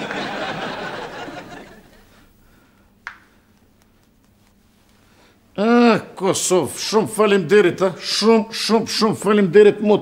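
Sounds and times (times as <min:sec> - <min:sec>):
crowd laughing: 0:00.0 - 0:02.2.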